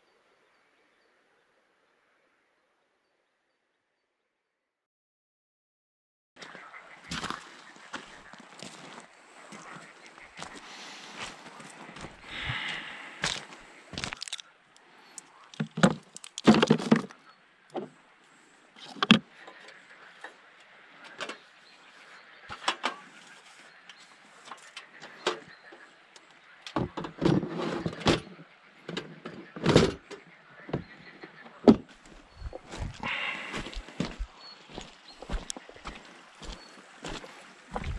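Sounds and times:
footsteps on loose stones: 6.5 - 14.5, 15.2 - 17.1, 31.9 - 37.9
camping gear clattering: 12.0 - 14.5, 15.2 - 17.2.

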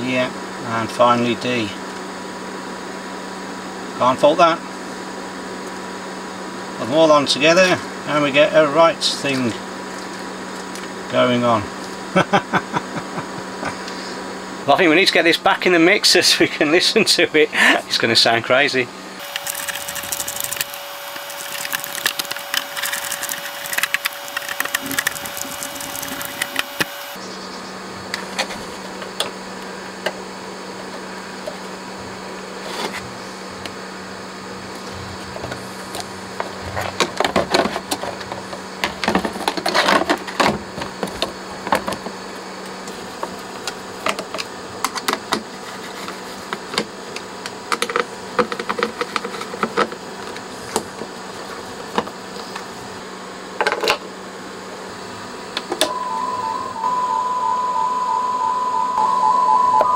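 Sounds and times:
steady low hum: 0.0 - 59.9
pulsing steady tone: 55.9 - 59.9.

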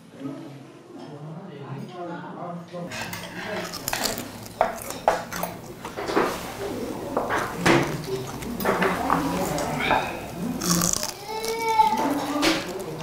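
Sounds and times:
chopsticks and dishes clinking: 2.9 - 13.0.

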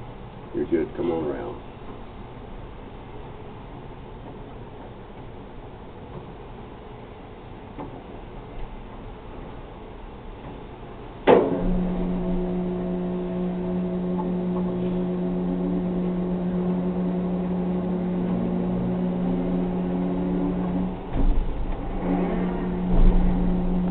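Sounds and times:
crane slewing drive humming: 0.0 - 23.9
low rumble: 11.4 - 23.9.

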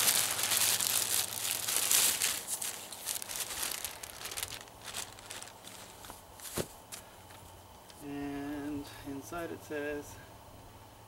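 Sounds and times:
plastic bag crinkling: 0.0 - 7.1.

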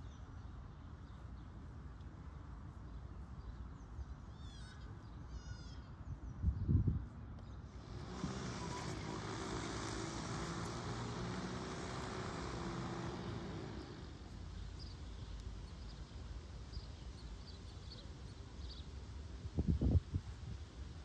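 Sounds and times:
outdoor ambience: 0.0 - 21.0
engine passing by: 7.7 - 14.8.

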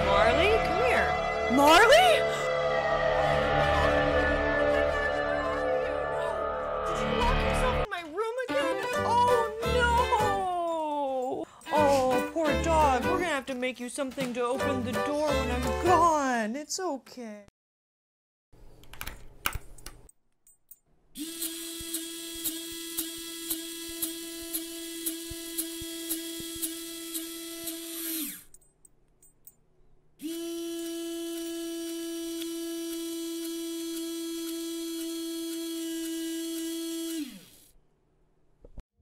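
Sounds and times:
electric motor whirring: 21.2 - 28.5, 30.2 - 37.8.

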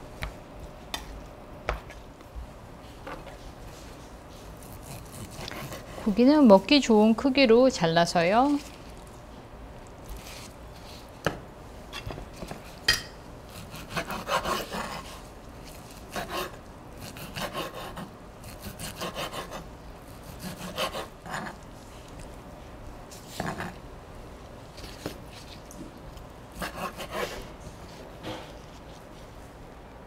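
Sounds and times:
knife sawing through steak: 4.6 - 6.1, 13.5 - 15.2, 16.0 - 21.6, 26.6 - 27.5.

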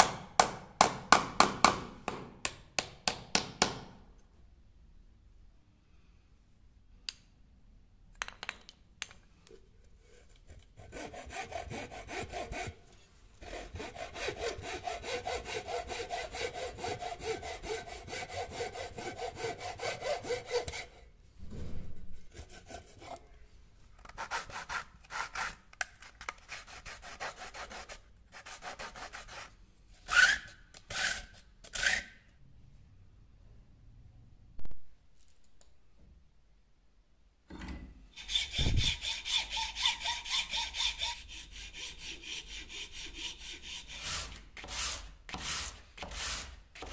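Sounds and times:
hand saw cutting wood: 10.5 - 12.8, 13.4 - 21.1, 22.3 - 23.2, 30.1 - 32.1, 38.2 - 46.9.

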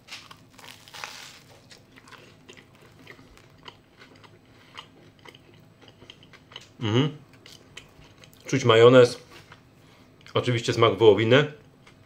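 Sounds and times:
toasted bread crunching: 0.0 - 6.7
quiet chewing with clicks: 2.0 - 8.5.

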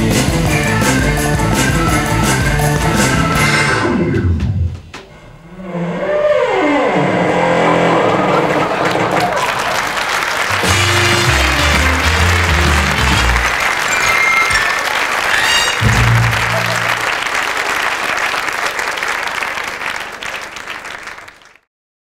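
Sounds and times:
audience applauding: 8.0 - 21.7.

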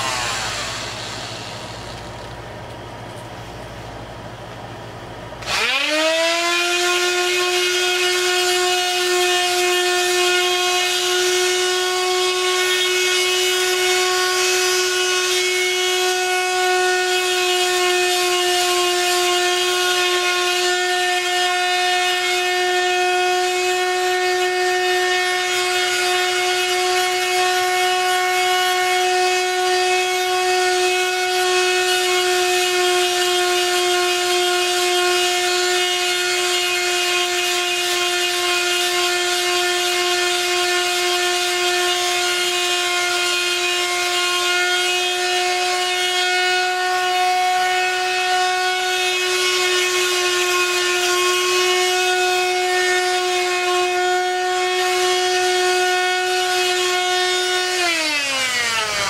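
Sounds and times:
electric sander whining: 0.0 - 2.5, 5.4 - 59.0.

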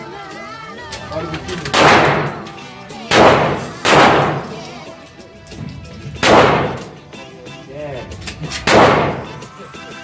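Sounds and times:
background music: 0.0 - 10.0
pistol shots indoors: 1.7 - 2.5, 3.1 - 4.6, 6.2 - 6.9, 8.5 - 9.4.

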